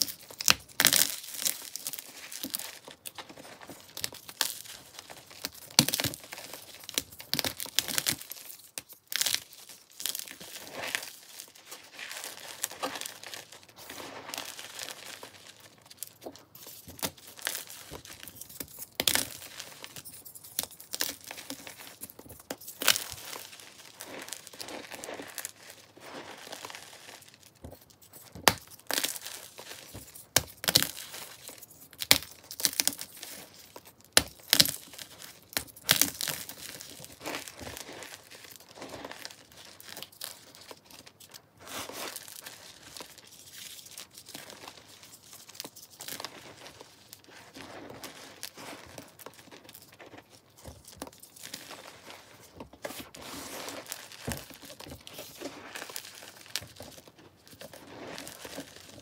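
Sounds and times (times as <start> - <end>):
chalk pieces snapping: 0.0 - 11.1, 27.3 - 41.4
chalk crunching and crackling: 0.0 - 59.0.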